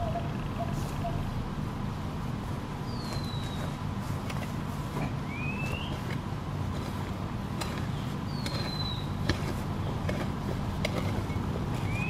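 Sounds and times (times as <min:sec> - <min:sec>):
steady low hum: 0:00.0 - 0:12.0
spade striking soil: 0:03.0 - 0:12.0.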